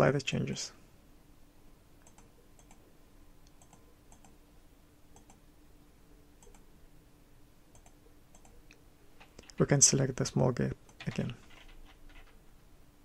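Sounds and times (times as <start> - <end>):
low steady hum: 0.0 - 13.0
computer mouse clicks: 2.0 - 4.4, 5.1 - 5.4, 6.4 - 6.7, 7.7 - 9.6, 10.9 - 12.4.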